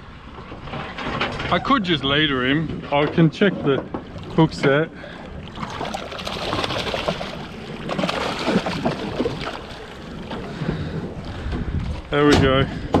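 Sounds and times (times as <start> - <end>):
fish splashing at the surface: 5.4 - 10.1.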